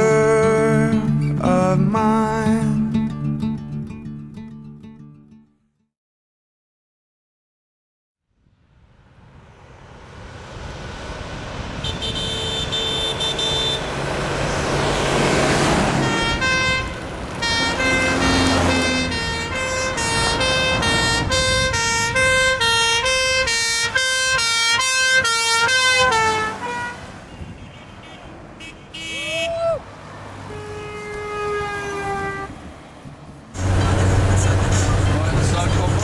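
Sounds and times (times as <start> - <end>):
vehicles passing: 8.5 - 36.0
car horn: 11.8 - 29.7, 30.4 - 32.7
ambulance two-tone siren: 15.9 - 27.0.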